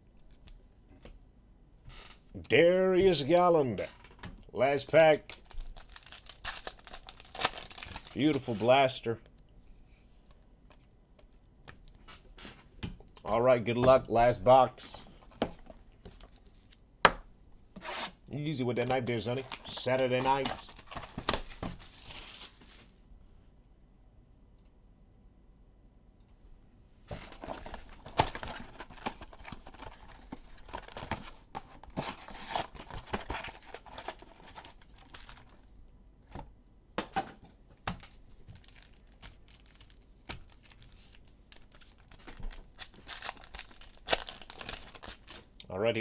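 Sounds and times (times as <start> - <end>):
foil packs crinkling and ripping: 5.2 - 8.9, 18.8 - 22.9, 32.0 - 35.6, 38.5 - 45.5.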